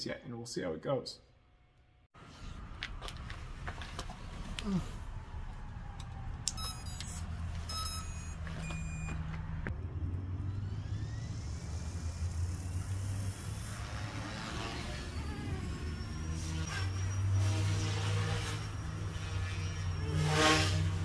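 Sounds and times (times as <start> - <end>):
electric motors whining: 5.5 - 21.0
short electronic beeps: 6.5 - 9.2.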